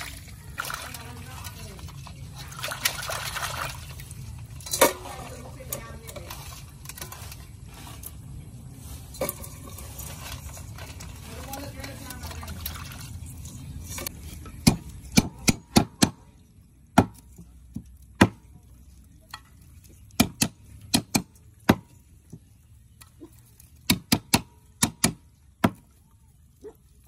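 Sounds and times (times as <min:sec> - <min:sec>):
water sloshing: 0:00.0 - 0:15.4.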